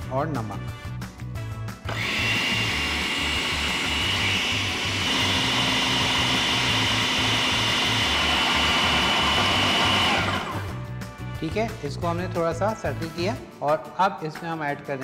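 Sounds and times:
food processor whining: 1.8s - 10.8s.

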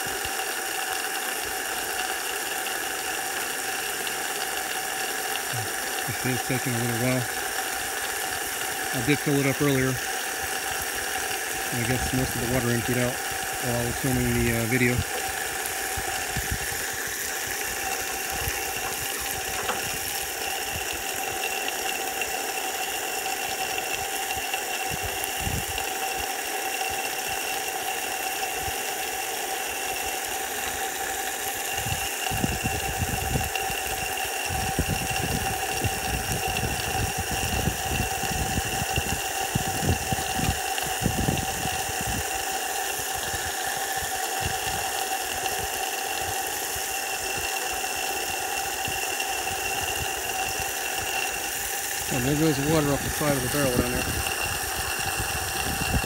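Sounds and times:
motor whining: 1.2s - 56.0s.

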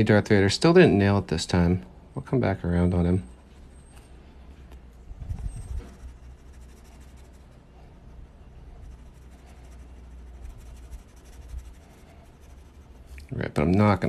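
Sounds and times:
steady low hum: 0.0s - 14.0s
pen scratching on paper: 5.3s - 13.2s.

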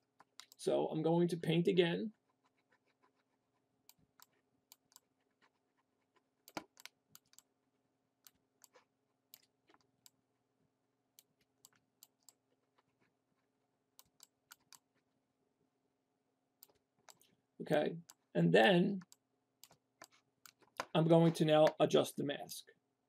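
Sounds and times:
mouse and keyboard clicks: 3.9s - 7.5s, 14.0s - 14.9s, 16.6s - 17.3s, 19.0s - 20.9s.

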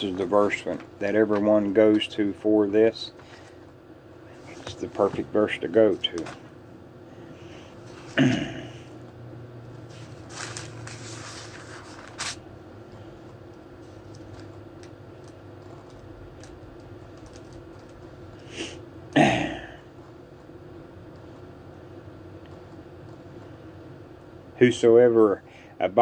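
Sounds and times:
handling rustle: 9.8s - 12.4s.

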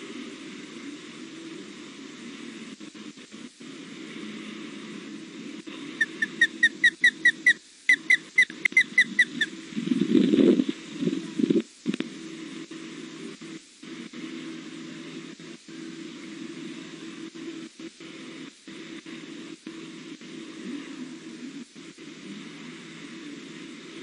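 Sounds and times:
low background hum: 0.0s - 24.0s
bird whistled chirps: 6.0s - 9.5s.

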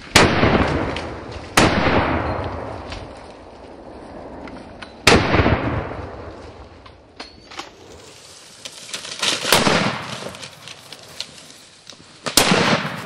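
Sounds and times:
rifle shots: 0.1s - 2.7s, 5.0s - 6.2s, 9.5s - 10.2s, 12.2s - 13.0s.

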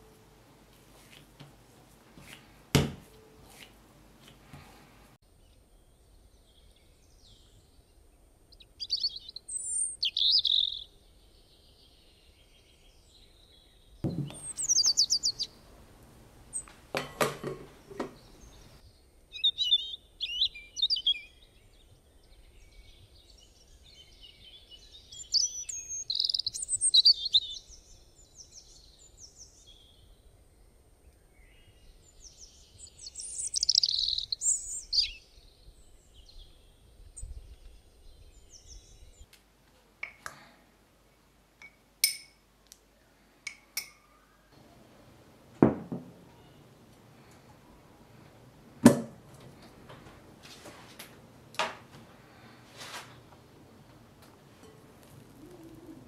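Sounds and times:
songbird chirps and trills: 5.3s - 39.3s, 53.2s - 56.0s.

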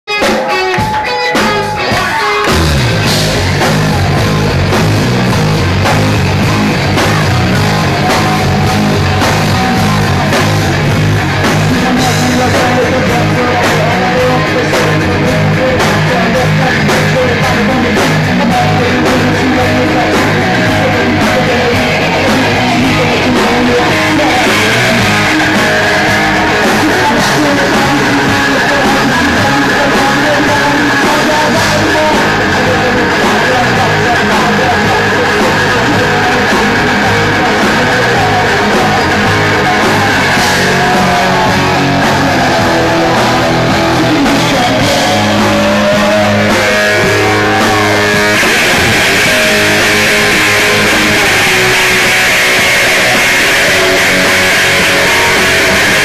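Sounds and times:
live rock band playing: 0.1s - 56.0s
woman singing: 11.6s - 47.9s.

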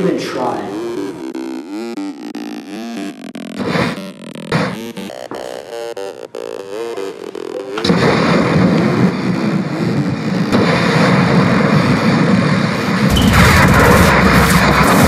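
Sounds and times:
electric blast rush: 0.0s - 15.0s
heavy low boom: 10.5s - 15.0s.

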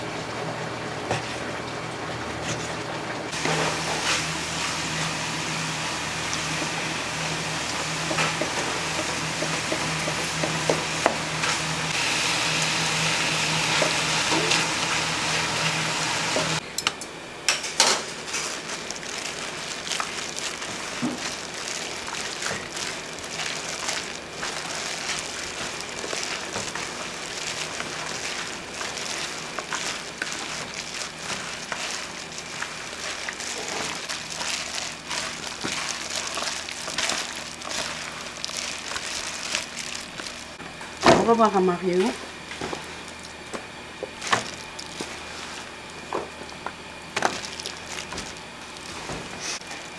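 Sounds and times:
food sizzling in hot oil: 18.3s - 40.6s.

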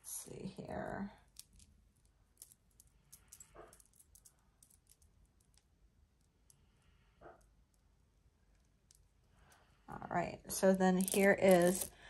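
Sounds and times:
bead strand clicking: 10.9s - 12.0s.

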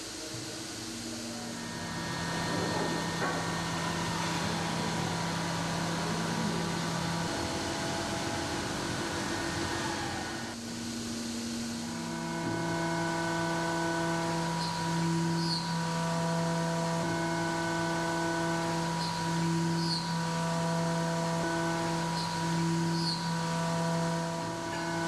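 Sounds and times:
machine held tones changing pitch: 1.5s - 10.6s.

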